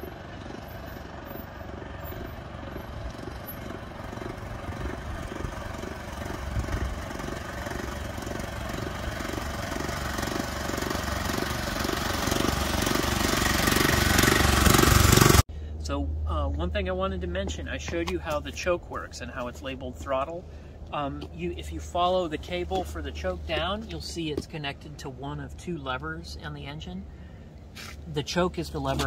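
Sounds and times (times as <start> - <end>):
small gasoline engine running: 0.0 - 15.4.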